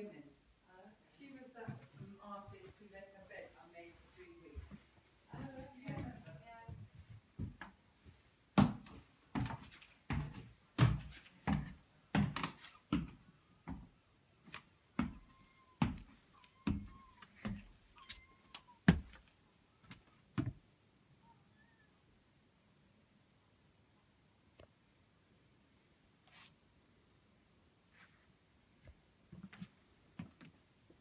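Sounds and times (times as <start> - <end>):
footsteps on wooden stairs: 4.5 - 13.9, 15.0 - 20.6.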